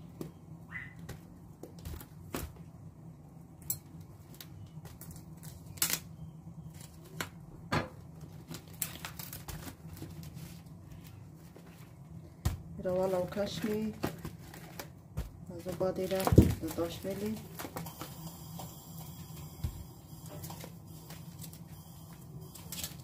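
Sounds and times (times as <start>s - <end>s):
steady low hum: 0.0s - 23.0s
plastic film crinkling: 8.1s - 12.0s, 12.8s - 23.0s.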